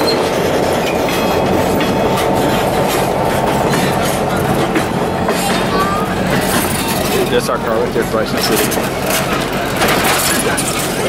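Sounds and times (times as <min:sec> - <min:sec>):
train cars rumbling past: 0:00.0 - 0:11.0
wheels clicking over rail joints: 0:00.0 - 0:11.0.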